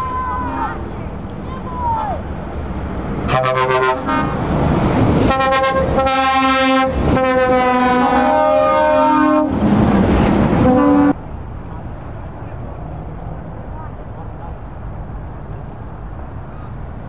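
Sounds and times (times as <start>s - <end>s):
truck air horns blasting: 3.2s - 4.5s, 5.2s - 9.6s, 10.6s - 11.2s.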